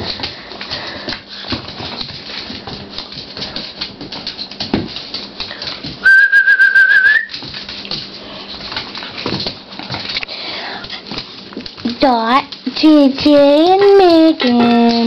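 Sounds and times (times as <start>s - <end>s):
puppies scuffling on tile floor: 0.0s - 15.0s
high whistling tone: 6.0s - 7.3s.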